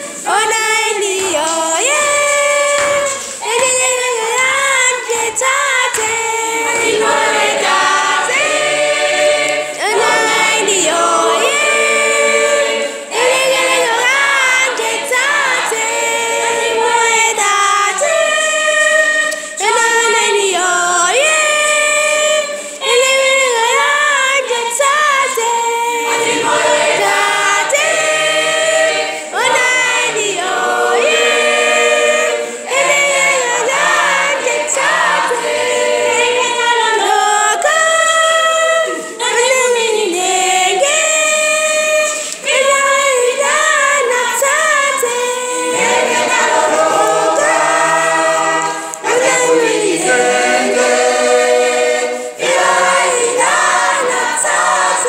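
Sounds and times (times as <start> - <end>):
mixed choir singing: 0.0 - 55.0.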